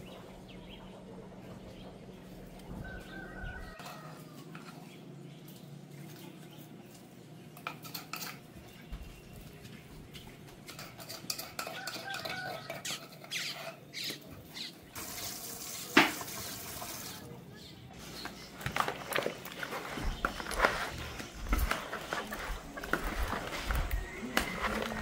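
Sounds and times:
pots and utensils clinking: 0:07.5 - 0:08.8, 0:10.4 - 0:14.3.

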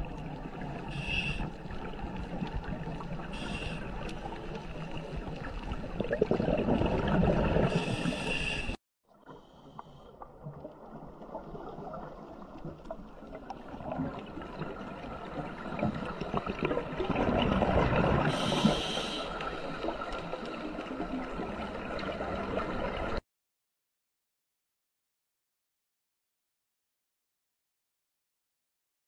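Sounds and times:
underwater crackling rush: 0:00.0 - 0:08.8, 0:09.8 - 0:23.2.

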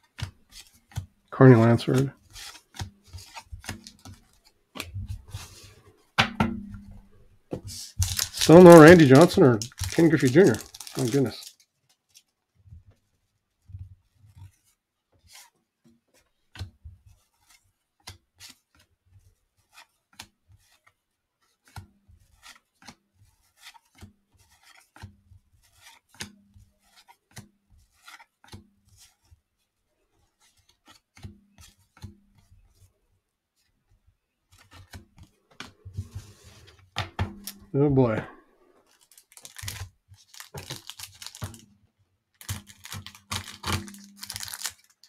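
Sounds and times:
cards flipped through by hand: 0:00.1 - 0:05.8, 0:06.8 - 0:12.4, 0:19.6 - 0:29.4, 0:30.2 - 0:32.9, 0:34.5 - 0:37.7, 0:38.8 - 0:41.7, 0:42.4 - 0:45.0.

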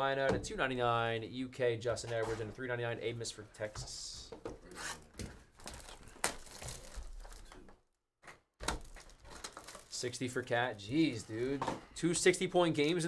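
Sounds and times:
cardboard box crinkling and rustling: 0:05.6 - 0:07.5, 0:08.8 - 0:10.0.

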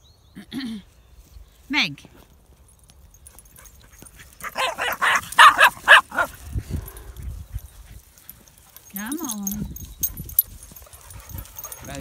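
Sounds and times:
dog barking: 0:04.4 - 0:06.3.

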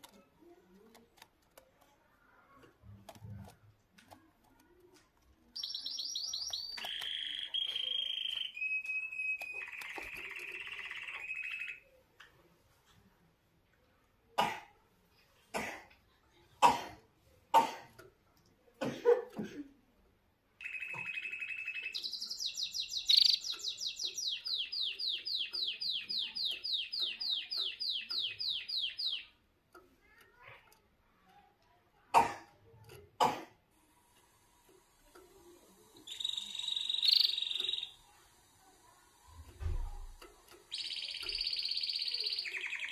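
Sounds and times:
canary singing: 0:05.4 - 0:12.0, 0:20.6 - 0:30.8, 0:35.2 - 0:38.5, 0:39.8 - 0:42.9.

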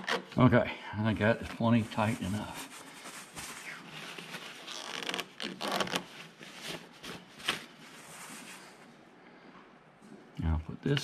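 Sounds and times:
cloth rag rustling and rubbing: 0:01.1 - 0:09.0.

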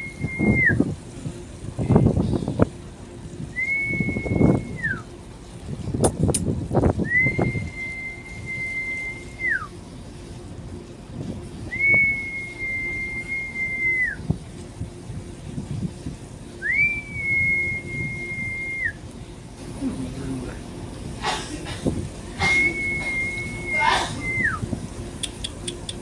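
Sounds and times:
person whistling long notes: 0:00.0 - 0:00.8, 0:03.6 - 0:05.0, 0:07.1 - 0:09.7, 0:11.7 - 0:14.2, 0:16.6 - 0:19.0, 0:22.4 - 0:24.6
low background rumble: 0:00.0 - 0:26.0.

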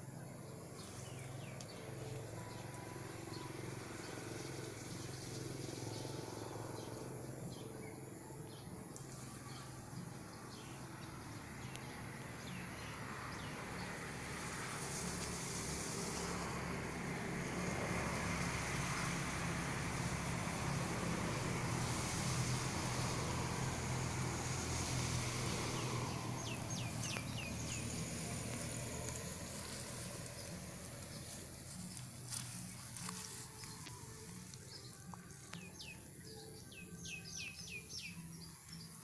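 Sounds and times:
vehicle engine passing: 0:00.0 - 0:38.9
bird chirps: 0:34.6 - 0:39.0.

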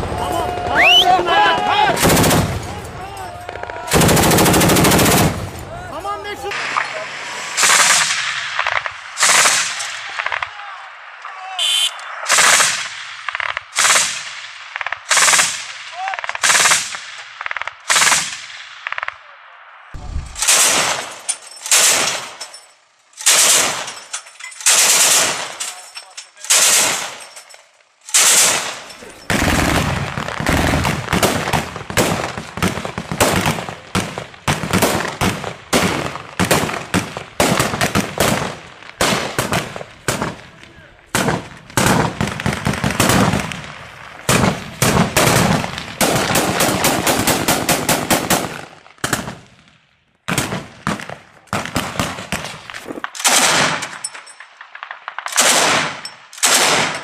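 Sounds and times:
automatic gunfire bursts: 0:02.0 - 0:02.5, 0:03.9 - 0:05.4, 0:26.5 - 0:27.2, 0:28.1 - 0:31.4, 0:44.3 - 0:49.3
single gunshots: 0:06.5 - 0:10.6, 0:19.9 - 0:22.4, 0:28.1 - 0:43.7, 0:50.3 - 0:53.9, 0:54.8 - 0:57.0.

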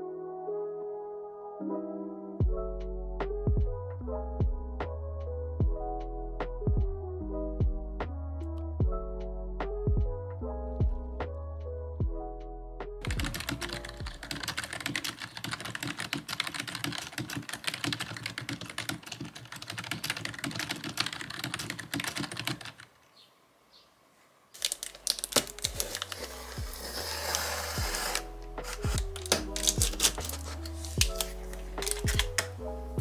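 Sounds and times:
soft background music: 0:00.0 - 0:18.8, 0:24.6 - 0:33.0
fast typing on keyboard: 0:13.0 - 0:22.9, 0:24.6 - 0:32.5.

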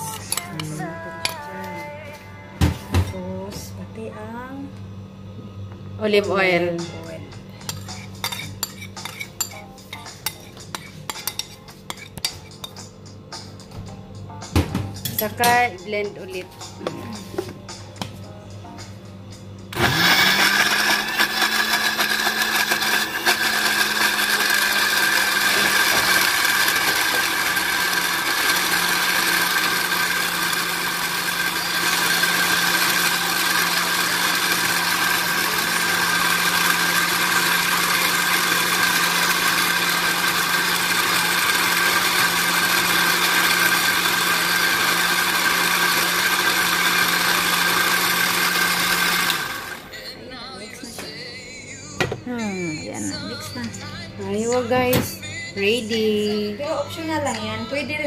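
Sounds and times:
blender motor running: 0:19.7 - 0:49.9.

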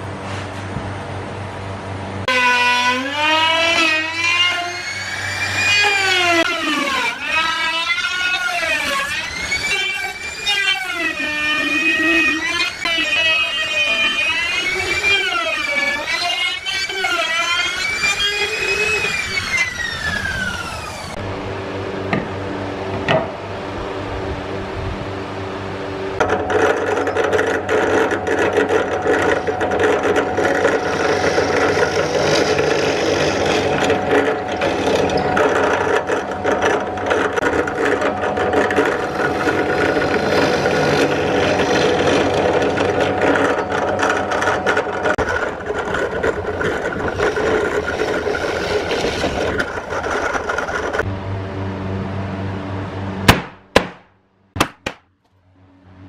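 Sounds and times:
motor hum: 0:00.0 - 0:56.0
drill press boring plywood: 0:02.3 - 0:21.3, 0:26.2 - 0:51.1.

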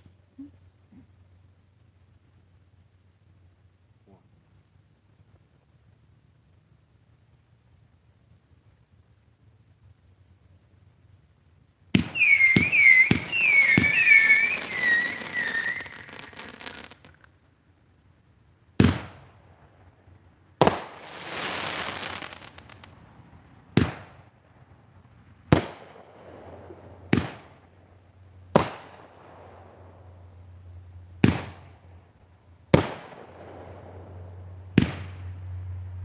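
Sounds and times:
firework crackling: 0:05.8 - 0:17.9, 0:18.8 - 0:36.0
firework shots: 0:11.9 - 0:17.3, 0:18.8 - 0:19.4, 0:20.6 - 0:23.0, 0:23.7 - 0:24.3, 0:25.5 - 0:27.7, 0:28.5 - 0:30.0, 0:31.2 - 0:31.8, 0:32.7 - 0:35.5
warbling firework whistles: 0:12.0 - 0:17.2.

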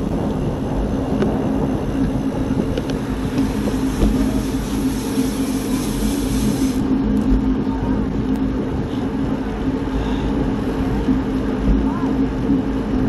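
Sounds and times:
vehicle droning hum: 0:00.0 - 0:13.0
wind rumbling on microphone: 0:00.0 - 0:13.0
high hiss: 0:03.4 - 0:06.8.

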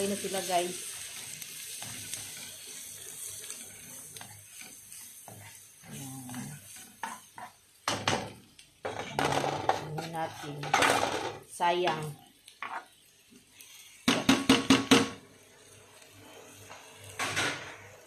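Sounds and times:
onions sizzling in a frying pan: 0:00.0 - 0:18.0
spoon knocking and scraping pans: 0:06.3 - 0:12.9, 0:14.0 - 0:15.2, 0:17.2 - 0:17.8.

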